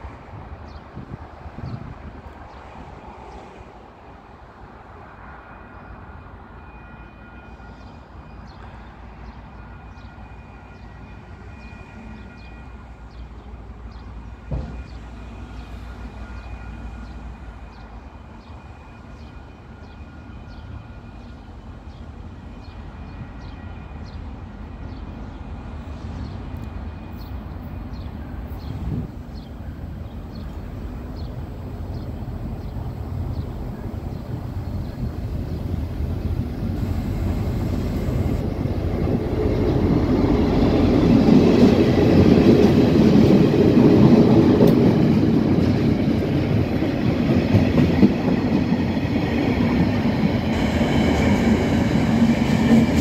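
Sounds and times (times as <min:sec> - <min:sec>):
locomotive engine rumble: 0:27.4 - 0:53.0.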